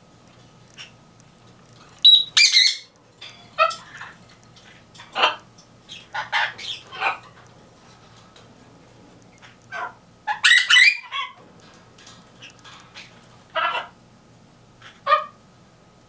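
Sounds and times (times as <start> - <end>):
birds calling: 1.9 - 7.5, 9.3 - 11.4, 12.2 - 14.0.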